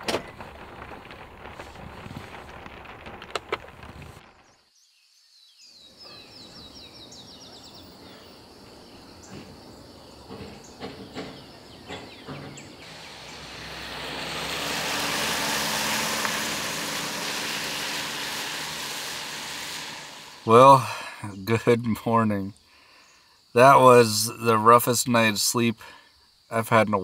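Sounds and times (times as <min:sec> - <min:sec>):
vehicle passing on wet pavement: 0:00.0 - 0:04.2, 0:12.5 - 0:21.0
birds chirping: 0:04.2 - 0:16.1, 0:20.3 - 0:27.0.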